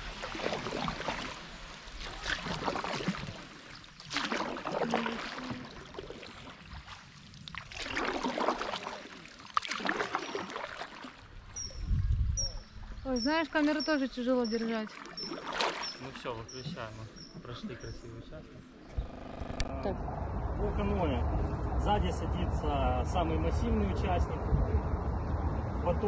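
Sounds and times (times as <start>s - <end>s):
canoe paddles splashing in water: 0.0s - 11.9s, 13.5s - 18.2s.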